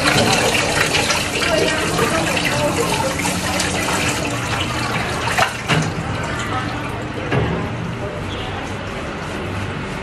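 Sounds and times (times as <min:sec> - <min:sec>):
shower sprayer water splashing: 0:00.0 - 0:07.0.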